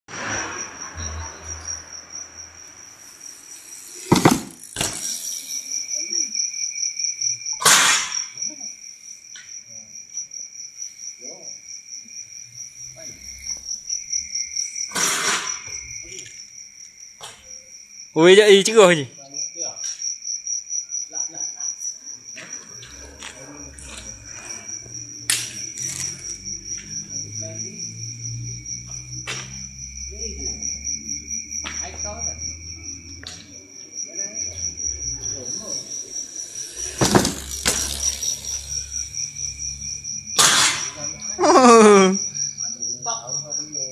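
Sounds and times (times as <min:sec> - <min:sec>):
crickets trilling: 0:00.1 - 0:43.9
low steady insect call: 0:00.1 - 0:43.9
sharp knocks: 0:04.1 - 0:04.9.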